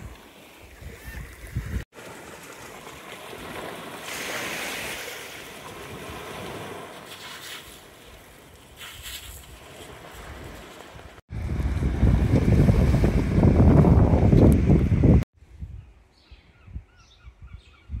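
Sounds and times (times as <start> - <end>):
small waves breaking on shore: 0.0 - 13.5.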